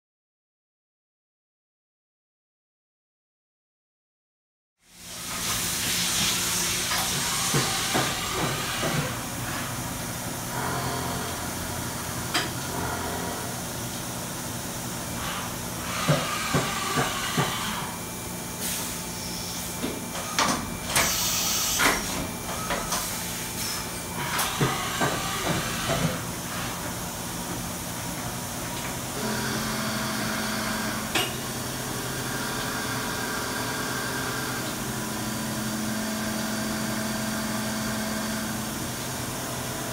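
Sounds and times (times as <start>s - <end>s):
milling machine spindle humming: 6.7s - 18.4s, 19.2s - 27.0s, 28.9s - 39.9s.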